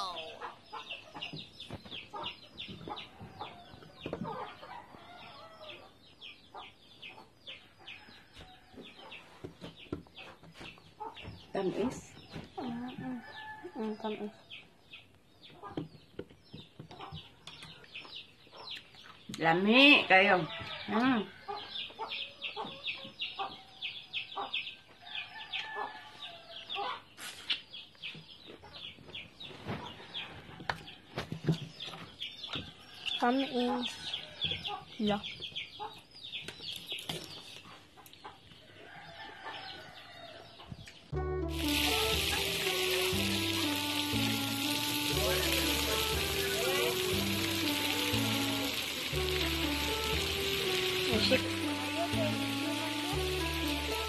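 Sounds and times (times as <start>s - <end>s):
chickens clucking: 0.0s - 19.3s, 20.6s - 40.0s
chicks peeping: 0.0s - 19.4s, 21.0s - 54.0s.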